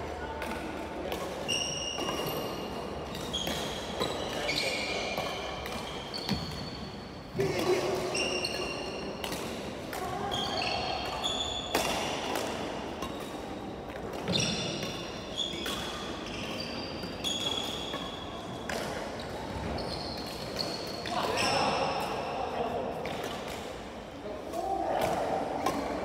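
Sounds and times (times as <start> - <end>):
racket hitting shuttlecock: 0.4 - 6.6, 11.0 - 16.2, 25.0 - 26.0
shoes squeaking on wooden floor: 14.3 - 14.8.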